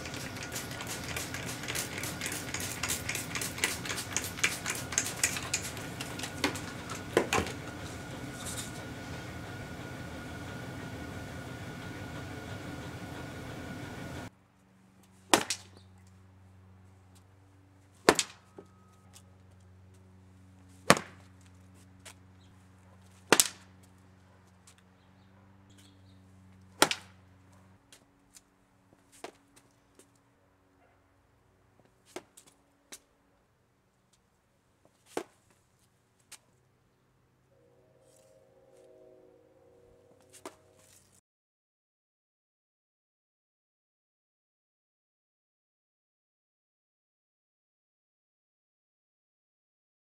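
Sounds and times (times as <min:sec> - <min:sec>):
spray bottle spritzing: 0:00.0 - 0:07.2
steady low hum: 0:00.0 - 0:34.8, 0:36.6 - 0:41.2
stick cracking through painted panel: 0:15.3 - 0:15.8, 0:18.0 - 0:18.6, 0:20.9 - 0:21.2, 0:23.3 - 0:23.6, 0:26.8 - 0:27.1.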